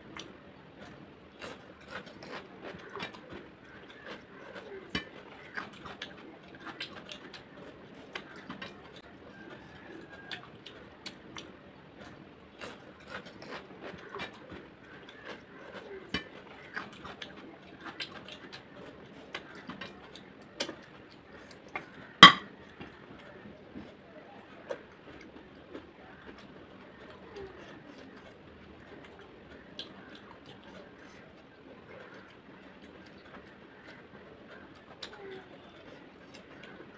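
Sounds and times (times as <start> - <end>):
chewing and mouth sounds: 0.0 - 36.9
ceramic bowl clink: 22.2 - 22.5.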